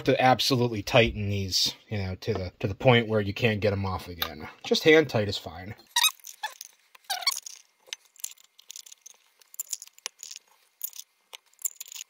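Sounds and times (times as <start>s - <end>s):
metal lids scraping on glass jars: 6.0s - 12.0s.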